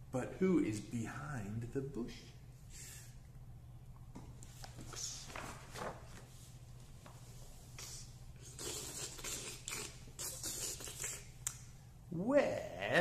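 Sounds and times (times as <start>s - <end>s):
low steady hum: 0.0s - 13.0s
paper pages rustling: 4.4s - 6.4s.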